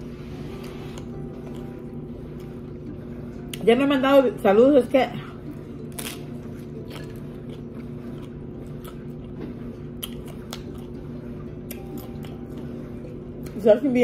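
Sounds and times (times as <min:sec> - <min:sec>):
steady low hum: 0:00.0 - 0:14.0
crunchy food being chewed: 0:05.5 - 0:13.6.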